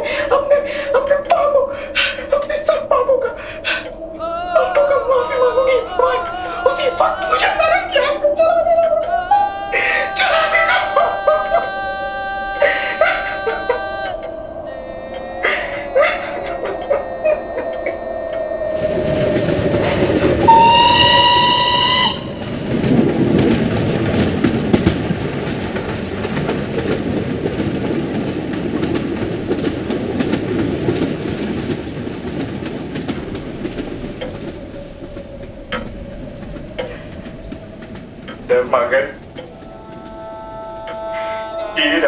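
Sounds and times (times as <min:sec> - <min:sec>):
train wheels rumbling and clattering: 0:00.0 - 0:11.7, 0:15.5 - 0:42.0
steam whistle blast: 0:19.2 - 0:23.0.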